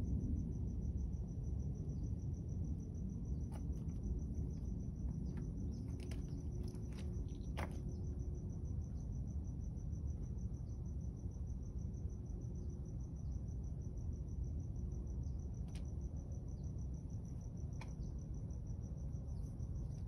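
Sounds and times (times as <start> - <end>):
steady low rumble: 0.0 - 10.0
insect chirping: 0.0 - 20.0.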